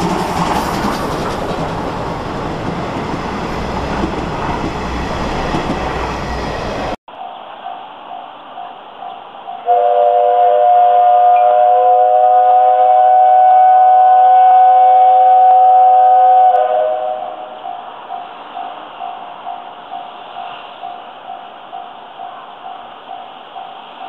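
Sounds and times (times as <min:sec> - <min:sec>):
steam whistle blast: 0:09.6 - 0:17.6.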